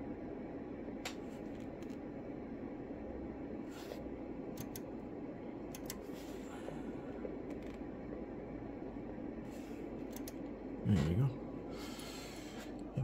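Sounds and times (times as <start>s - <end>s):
knob clicks: 4.6s - 4.9s, 5.7s - 6.0s, 10.1s - 10.4s.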